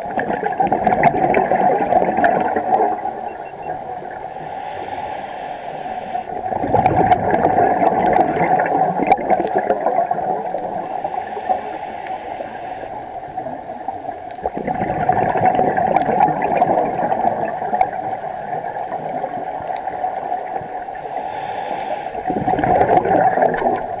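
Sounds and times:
exhaled bubbles gurgling underwater: 0.0 - 24.0
diver breathing underwater: 4.2 - 8.1, 10.6 - 13.2, 20.8 - 23.5.

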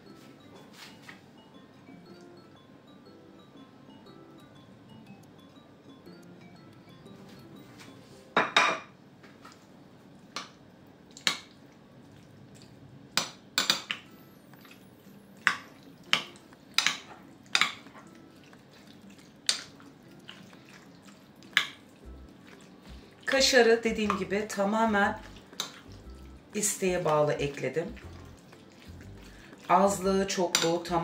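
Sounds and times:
metal utensil clinking on glass bowl: 30.4 - 31.0.

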